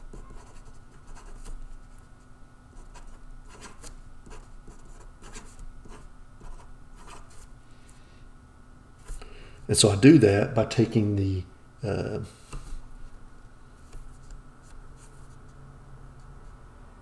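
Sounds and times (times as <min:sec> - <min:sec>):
marker pen scratching on paper: 0:00.0 - 0:02.0, 0:02.8 - 0:07.5.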